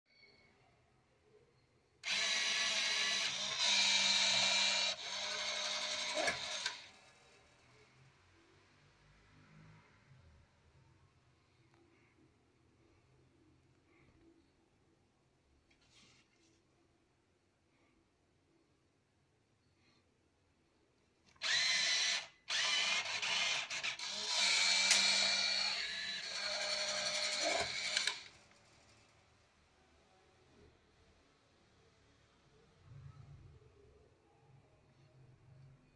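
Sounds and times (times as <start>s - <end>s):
banknote acceptor motor whine: 2.0s - 6.9s
motor whirring: 2.0s - 7.1s, 21.4s - 28.9s.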